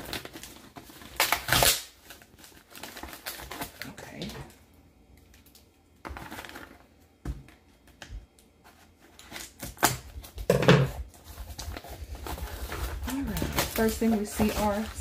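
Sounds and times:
scissors cutting packing tape: 0.0 - 3.7, 9.3 - 10.1
tape crinkling: 0.0 - 15.0
cardboard handling: 8.6 - 15.0.

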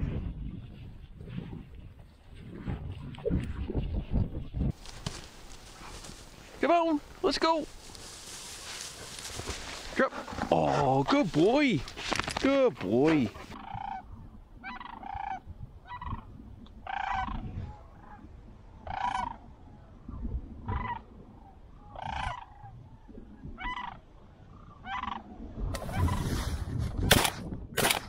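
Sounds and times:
cranes calling: 12.9 - 18.2, 18.8 - 19.4, 20.7 - 22.7, 23.6 - 26.3.

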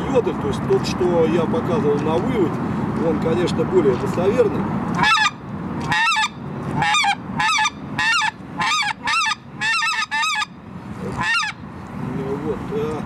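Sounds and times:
goose call honks: 5.0 - 10.5, 11.1 - 11.6.

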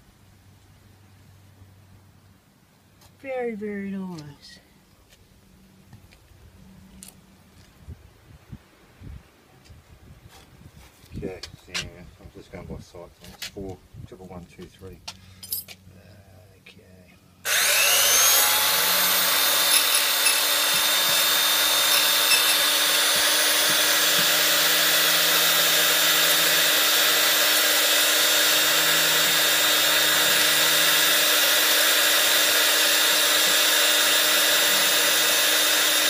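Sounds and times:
key cutting machine whine: 17.5 - 36.0.

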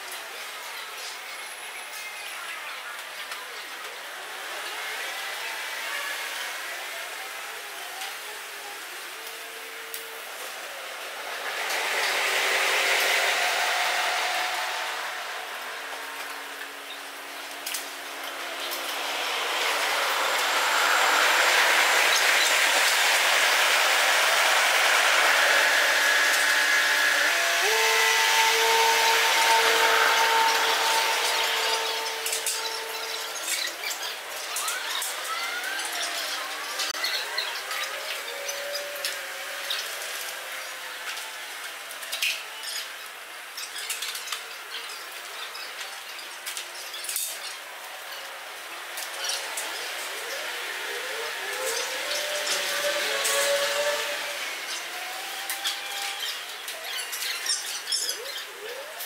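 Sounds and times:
machinery noise with hiss: 0.0 - 59.0
humming tone: 9.2 - 33.7
high squeaks: 18.8 - 34.1.

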